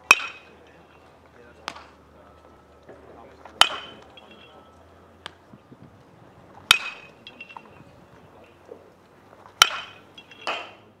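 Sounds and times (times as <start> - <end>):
metal bat hitting ball: 0.0 - 0.6, 1.6 - 2.0, 3.5 - 4.6, 6.6 - 10.9.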